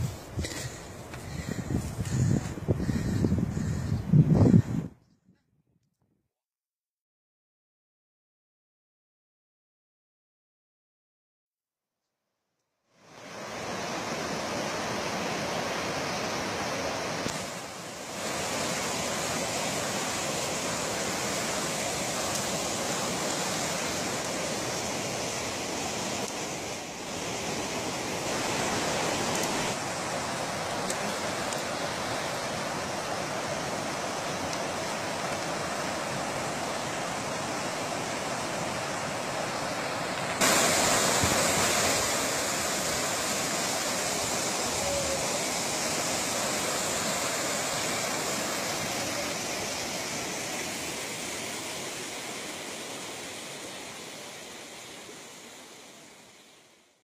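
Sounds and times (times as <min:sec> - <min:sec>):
river water rushing over rocks: 0:13.1 - 0:56.8.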